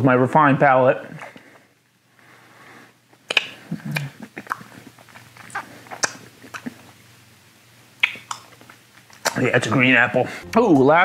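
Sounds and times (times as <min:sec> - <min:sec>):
wet mouth smacks and clicks: 0:03.2 - 0:07.0, 0:08.0 - 0:09.5.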